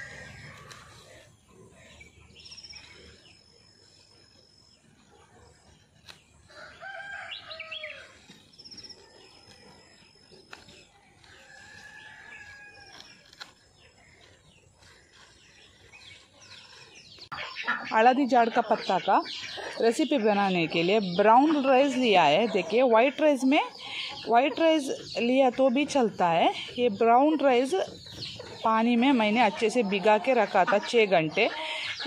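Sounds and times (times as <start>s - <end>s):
rooster crowing: 6.5s - 8.2s.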